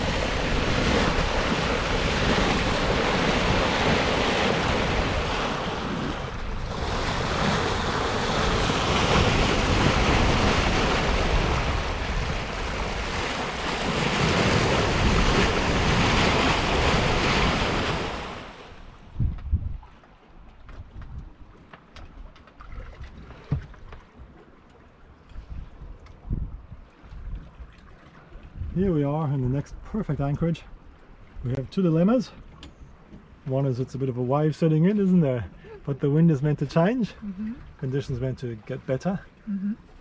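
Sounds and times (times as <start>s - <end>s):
wind buffeting microphone: 0.0s - 18.1s, 19.0s - 20.0s, 20.6s - 21.6s, 25.3s - 31.6s
water rushing along boat hull: 0.0s - 40.0s.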